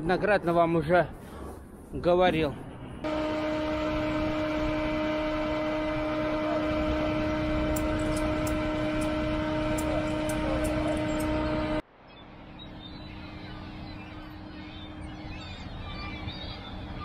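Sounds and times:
machine hum: 3.0 - 11.8, 12.9 - 17.0.

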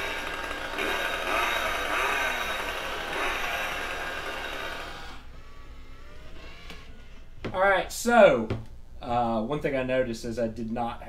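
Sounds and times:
chainsaw engine from speaker: 0.0 - 6.9.

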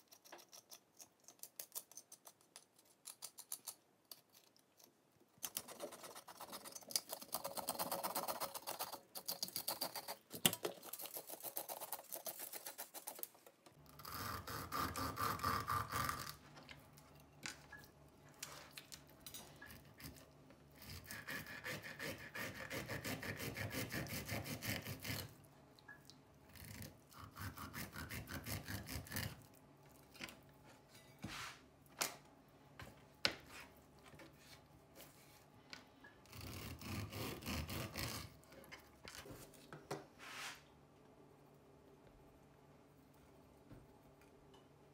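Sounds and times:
knife scraping fish scales: 20.8 - 25.3.

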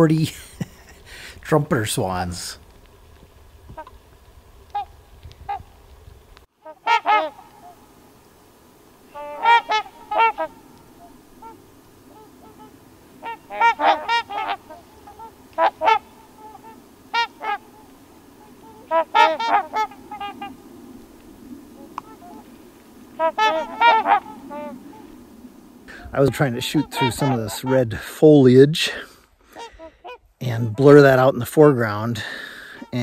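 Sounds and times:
swans honking: 3.7 - 4.0, 4.6 - 5.8, 6.6 - 28.2, 32.4 - 33.0.

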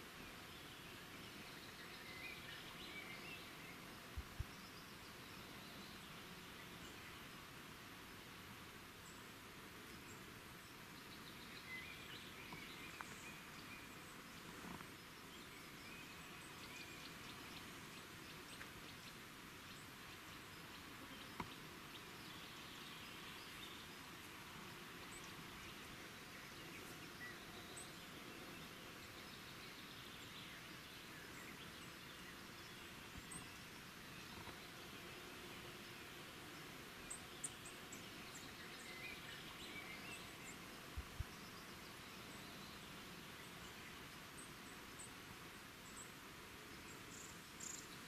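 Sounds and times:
steady low hiss: 0.0 - 48.0.

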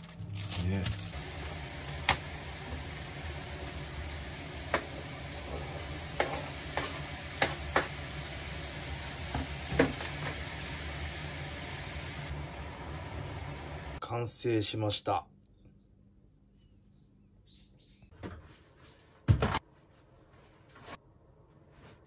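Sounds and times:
food sizzling in frying pan: 0.6 - 14.0
utensils knocking against pan: 6.1 - 8.0
low hum: 10.6 - 14.0.

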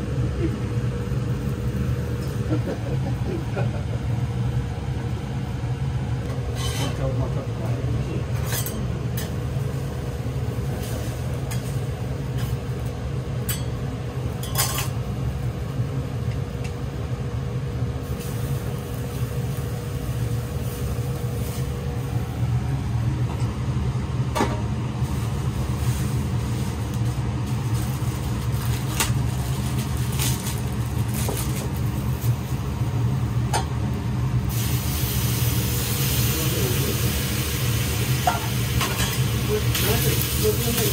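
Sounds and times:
kitchen equipment rumble: 0.0 - 16.8, 18.0 - 40.9
noodles sizzling: 8.2 - 15.8, 17.9 - 23.3, 24.8 - 40.9.

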